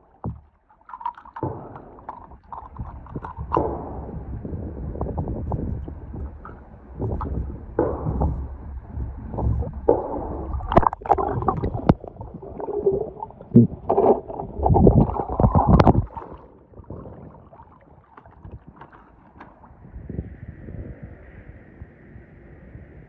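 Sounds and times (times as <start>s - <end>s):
pool water splashing: 0.0s - 19.8s.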